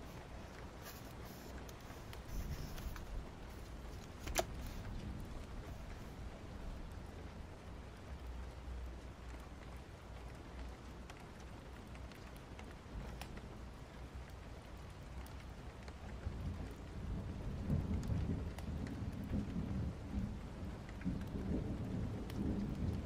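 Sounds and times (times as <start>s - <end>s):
thunder rumbling: 0.0s - 8.6s, 16.2s - 23.0s
rain falling: 0.0s - 23.0s.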